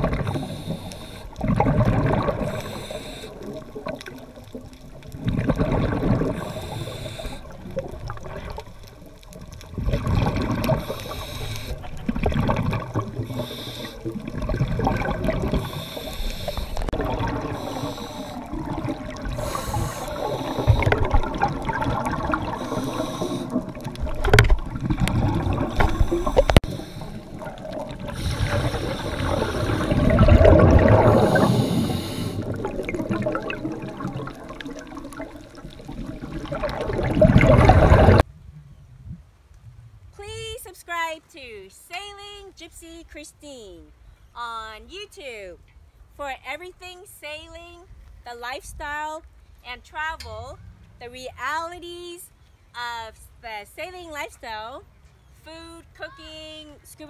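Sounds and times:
diver breathing through regulator: 0.0s - 3.8s, 6.2s - 7.6s, 10.6s - 12.2s, 13.1s - 14.5s, 15.3s - 23.9s, 25.0s - 34.0s
air bubbling and gurgling: 0.0s - 40.0s.

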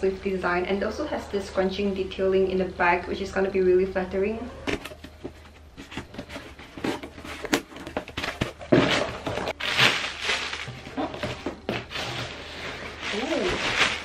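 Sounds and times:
cardboard scraping and rustling: 4.6s - 14.0s.

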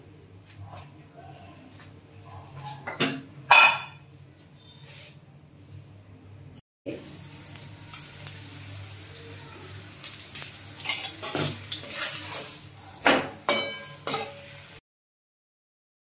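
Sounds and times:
metal spatula knocking on pan: 2.9s - 4.0s, 13.1s - 14.4s
flatbread sizzling in oil: 6.9s - 14.8s.

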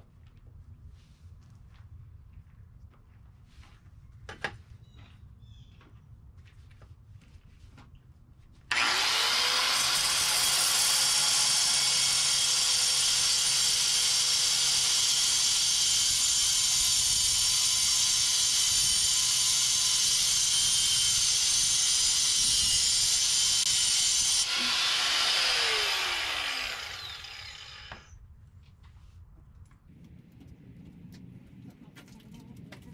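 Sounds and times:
high-pitched power tool whine: 8.7s - 28.2s.

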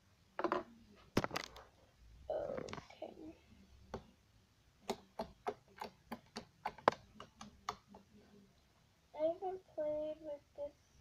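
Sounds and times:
slime clicking under fingertips: 4.8s - 8.0s.

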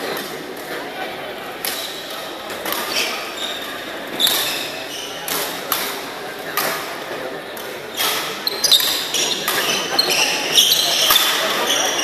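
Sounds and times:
shoes squeaking on court: 1.7s - 5.4s, 7.9s - 12.0s.

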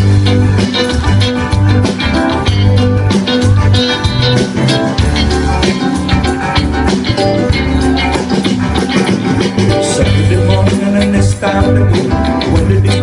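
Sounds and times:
bass line: 0.0s - 13.0s
guitar: 0.0s - 13.0s
percussion: 0.0s - 13.0s.

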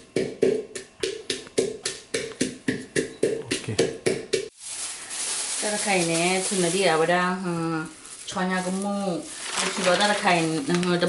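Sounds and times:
pestle pounding in wooden mortar: 0.0s - 4.5s.

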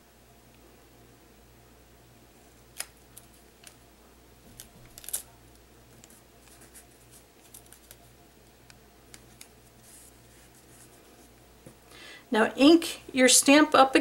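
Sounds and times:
foil crinkling and ticking: 4.5s - 5.3s, 6.0s - 9.5s.

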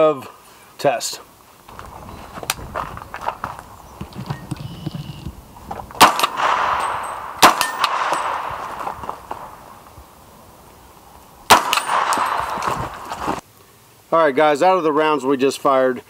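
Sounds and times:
gunshots: 6.0s - 9.6s, 11.5s - 13.4s
metallic ringing: 6.2s - 8.5s.

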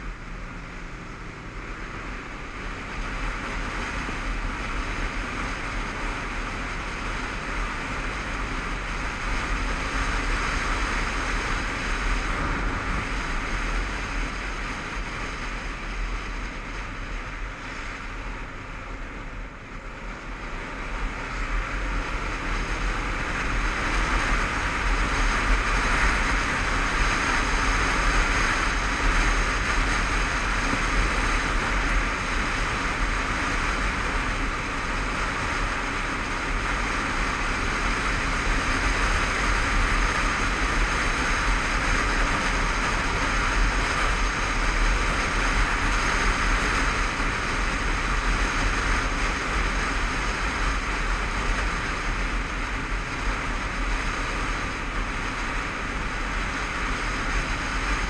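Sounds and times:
motorcycle engine running: 0.0s - 58.0s
wind rushing over microphone: 0.0s - 58.0s.

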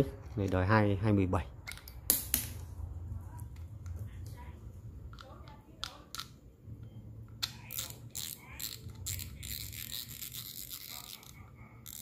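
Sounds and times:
fishing reel clicks: 7.6s - 12.0s.

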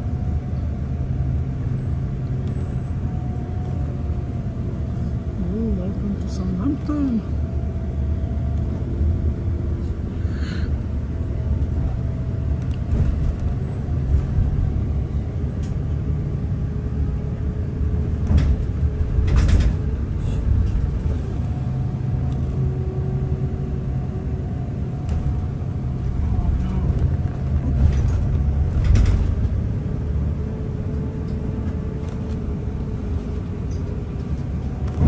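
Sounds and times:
bus engine: 0.0s - 35.0s
road rumble: 0.0s - 35.0s
brief rattles and knocks: 27.7s - 29.5s.

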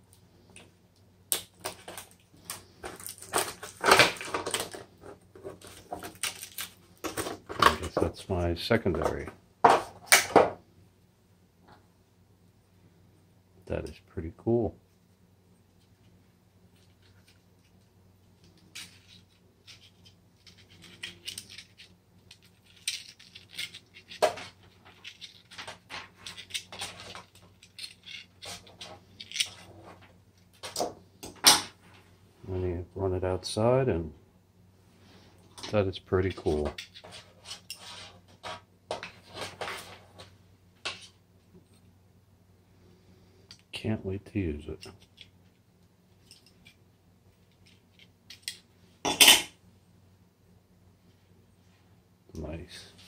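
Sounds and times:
cardboard and tape crinkling: 1.4s - 8.0s
wire scratching and rustling: 1.6s - 7.9s, 15.7s - 30.9s, 35.6s - 41.9s.

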